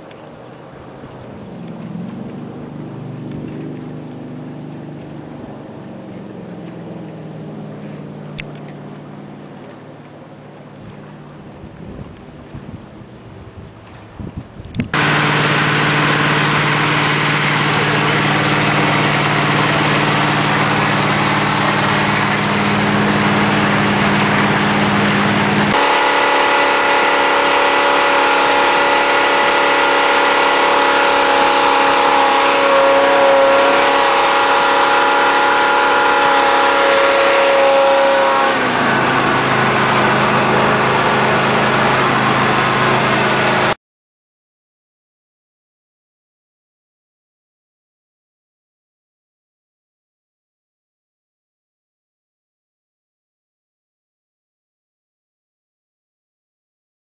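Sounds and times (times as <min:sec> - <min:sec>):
boat engine running hard: 0:00.0 - 0:43.8
rush of wind and water: 0:00.0 - 0:43.8.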